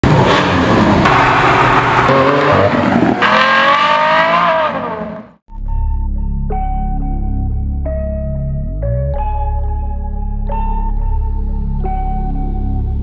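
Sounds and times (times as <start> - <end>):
car engine revving hard: 0.0 - 5.4.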